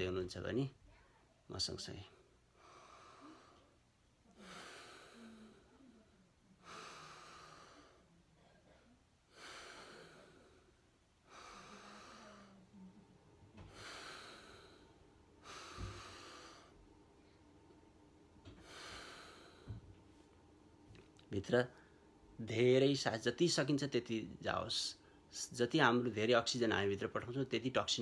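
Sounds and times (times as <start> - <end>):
deep breathing through nose: 2.5 - 3.8, 4.4 - 5.8, 6.6 - 8.0, 9.3 - 12.6, 13.6 - 16.8, 18.5 - 20.0.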